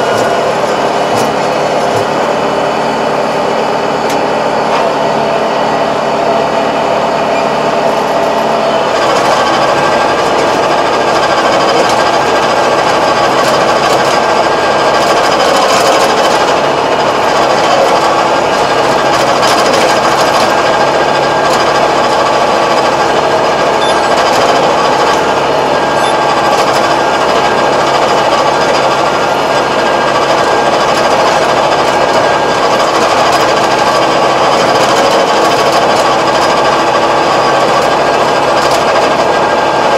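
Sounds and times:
tractor engine under load: 0.0s - 39.9s.

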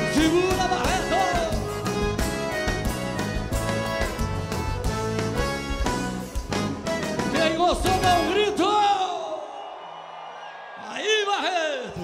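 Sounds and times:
guitar: 0.0s - 8.7s
live band playing: 0.0s - 9.0s.

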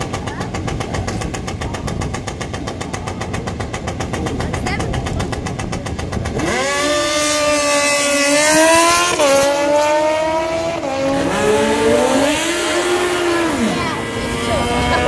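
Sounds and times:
racing engine revving: 0.0s - 15.0s.

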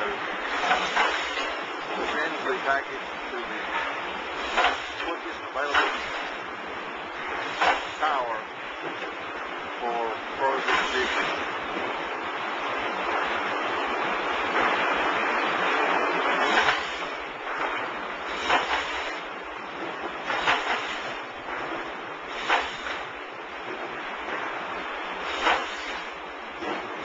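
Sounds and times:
conveyor mechanical rush: 0.0s - 27.0s
sharp clacks: 4.5s - 6.3s, 7.5s - 8.0s, 16.4s - 17.7s, 22.4s - 23.0s.

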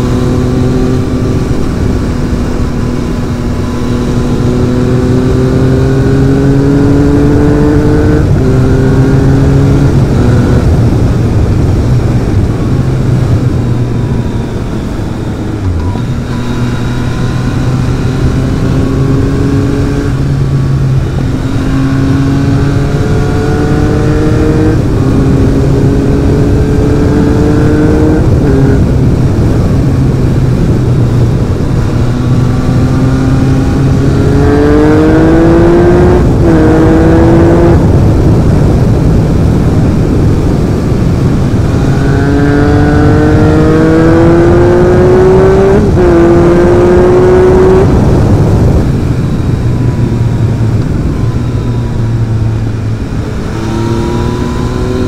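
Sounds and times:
motorcycle engine revving through gears: 0.0s - 55.0s.

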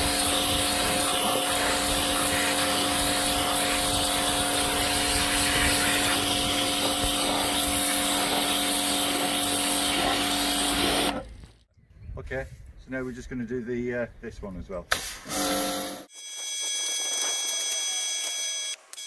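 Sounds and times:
water jet hissing: 0.0s - 11.2s
pressure washer motor hum: 0.0s - 11.4s.

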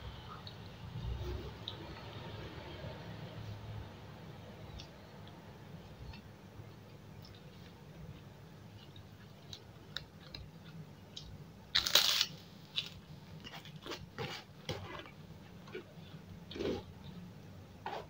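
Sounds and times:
cracker crunching: 8.8s - 14.5s.

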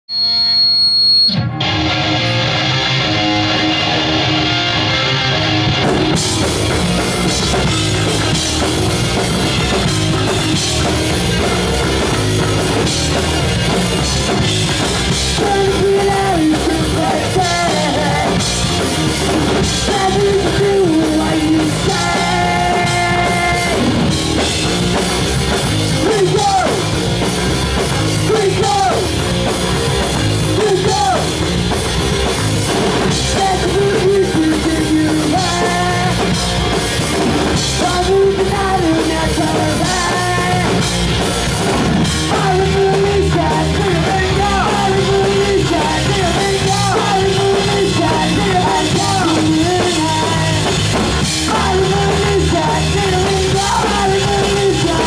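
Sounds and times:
distorted electric guitars: 0.1s - 55.0s
drum kit: 0.1s - 55.0s
person singing: 15.1s - 18.8s, 19.5s - 24.0s, 26.0s - 26.9s, 28.2s - 29.1s, 30.6s - 31.4s, 33.1s - 36.4s, 37.7s - 41.0s, 42.2s - 55.0s.

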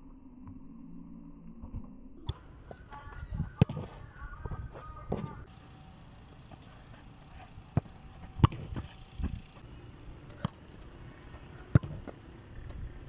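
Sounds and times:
foot kicking football thuds: 2.3s - 5.4s, 7.7s - 9.7s.

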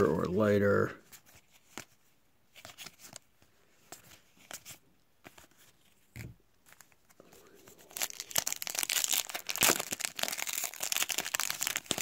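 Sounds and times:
trading cards clicking and rustling: 8.0s - 12.0s.

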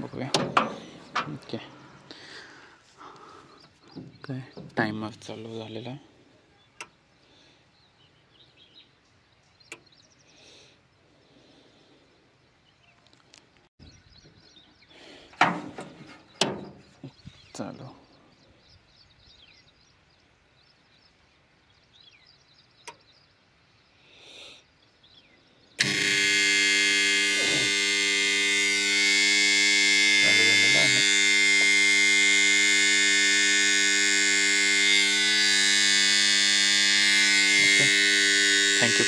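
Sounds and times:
loud electrical buzz-hum: 25.8s - 39.0s.

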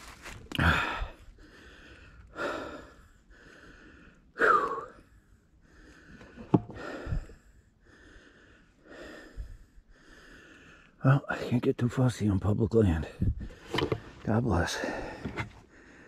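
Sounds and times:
man breathing hard: 0.5s - 11.0s, 14.8s - 16.0s.

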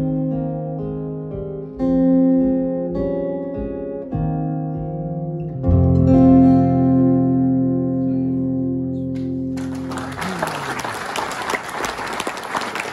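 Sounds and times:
audience applause: 9.5s - 12.9s.

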